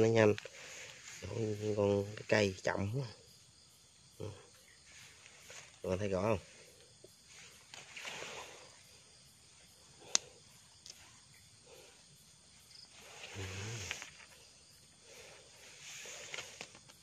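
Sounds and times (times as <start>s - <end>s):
soft rustling: 0.0s - 2.7s, 4.8s - 9.7s, 10.8s - 17.0s
knife scraping into soil: 7.2s - 8.9s, 15.2s - 17.0s.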